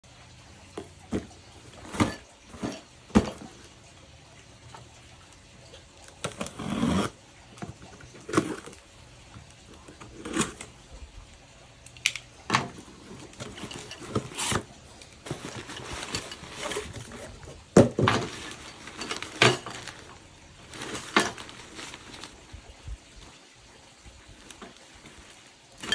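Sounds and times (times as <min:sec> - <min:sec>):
drawstring bag rustling: 0:12.5 - 0:25.9
cardboard box knocks and rustles: 0:13.5 - 0:19.9.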